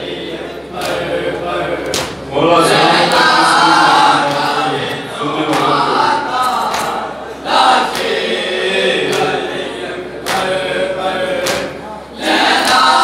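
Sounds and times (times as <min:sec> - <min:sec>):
man reciting into a microphone: 0:00.0 - 0:06.7
group of men chanting: 0:00.0 - 0:13.0.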